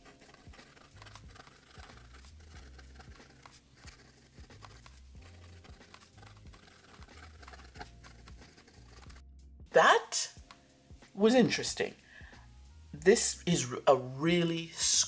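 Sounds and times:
fountain pen scratching on paper: 0.0s - 9.2s.

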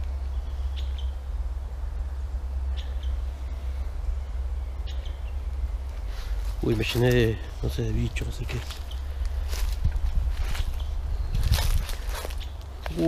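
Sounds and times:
bird chirping: 0.0s - 13.0s
low rumble: 0.0s - 13.0s.

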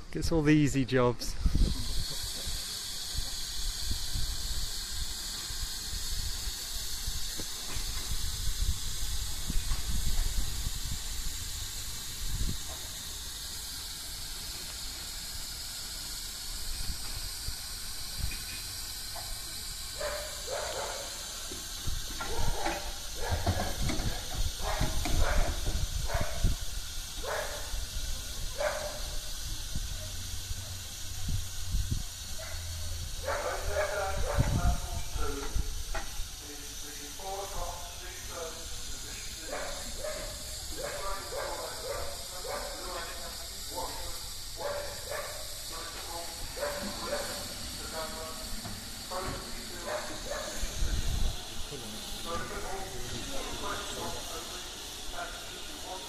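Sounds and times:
steam locomotive hissing: 0.0s - 56.0s.

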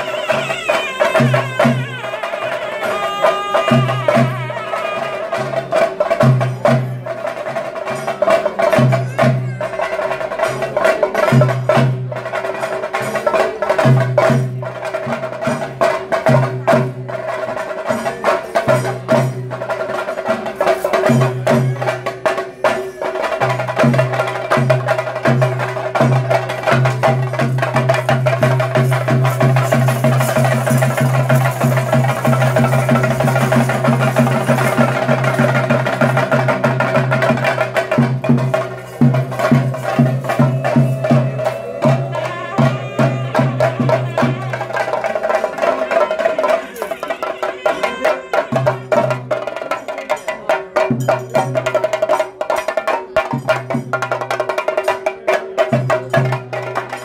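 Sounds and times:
fast drumming: 0.0s - 57.0s.

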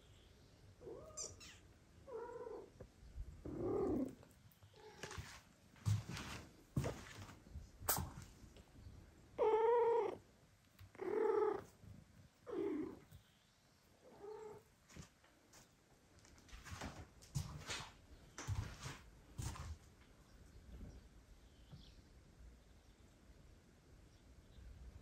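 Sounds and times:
cat meowing: 0.8s - 2.7s, 9.4s - 10.2s.

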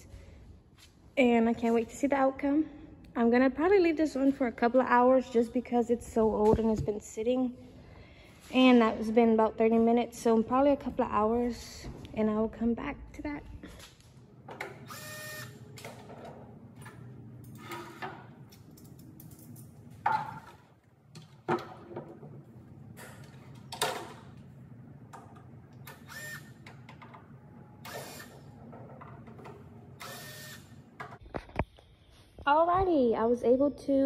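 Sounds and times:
steady low hum: 2.4s - 32.4s
cordless drill whirring: 14.7s - 15.6s, 25.8s - 26.7s, 27.8s - 28.6s, 30.0s - 30.8s.

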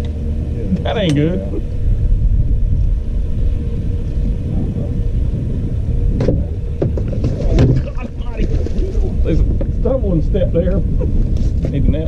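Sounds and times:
faint constant hum: 0.0s - 12.0s
low rumble: 0.0s - 12.0s
short knocks: 6.2s - 8.8s.

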